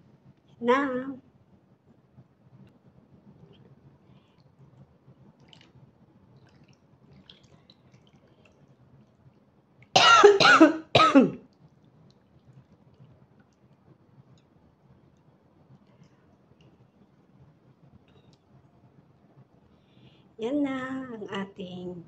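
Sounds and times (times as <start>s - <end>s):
person coughing: 10.0s - 11.4s.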